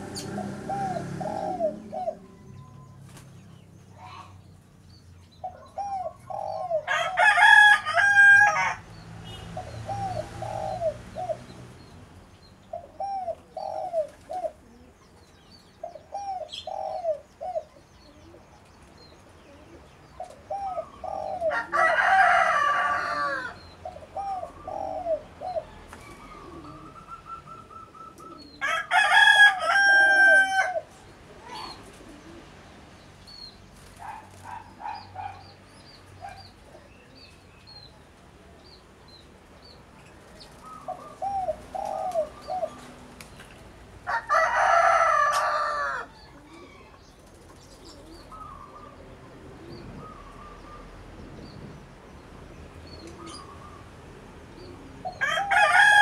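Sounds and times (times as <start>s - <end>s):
doves cooing: 0.0s - 4.4s, 5.3s - 11.9s, 12.6s - 32.7s, 33.8s - 35.5s, 40.0s - 56.0s
rooster crowing: 6.8s - 8.8s, 21.5s - 23.6s, 28.6s - 30.9s, 44.0s - 46.2s, 55.2s - 56.0s.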